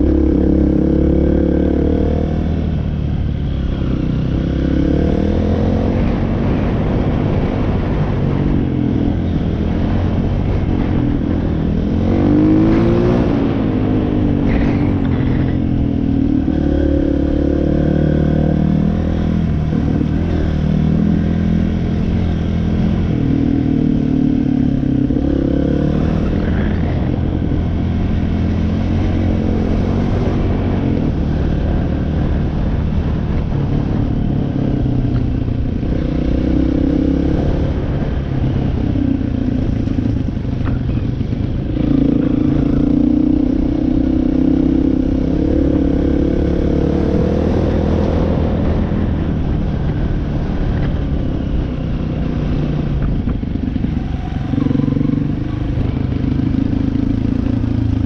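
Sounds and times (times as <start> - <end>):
off-road engine revving: 11.8 - 34.0, 39.6 - 58.0.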